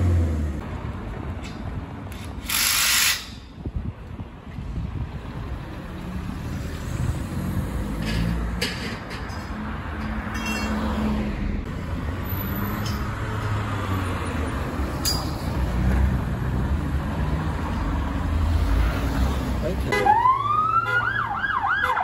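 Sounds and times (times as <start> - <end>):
car engine and tyre noise: 0.0 - 22.0
passing traffic: 0.0 - 22.0.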